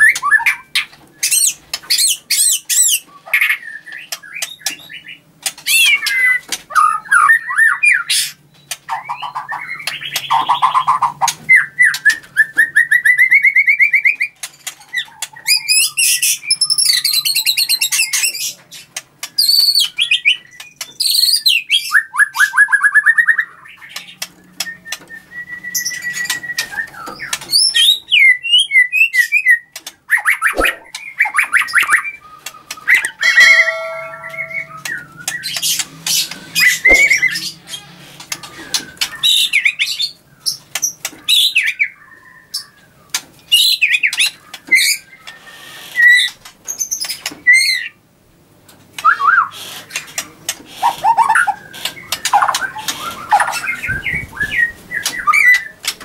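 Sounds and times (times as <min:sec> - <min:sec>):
bird singing whistled trills: 0:30.5 - 0:35.7, 0:36.6 - 0:37.5.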